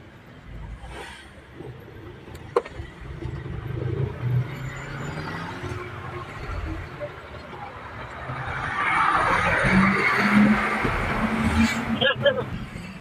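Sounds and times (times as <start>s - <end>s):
vehicle rumble: 0.0s - 13.0s.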